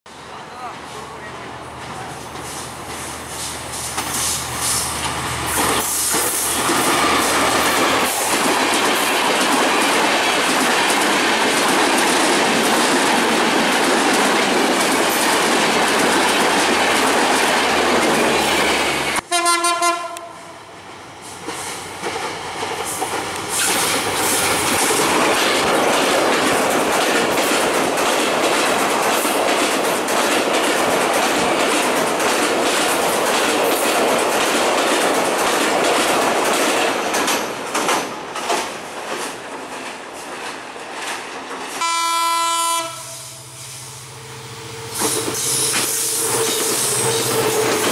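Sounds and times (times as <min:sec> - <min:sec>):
passing train rush: 0:00.1 - 0:47.9
train wheels clattering over rails: 0:01.7 - 0:19.2, 0:21.2 - 0:41.9, 0:44.9 - 0:47.9
train horn blast: 0:19.2 - 0:20.5, 0:41.8 - 0:43.6.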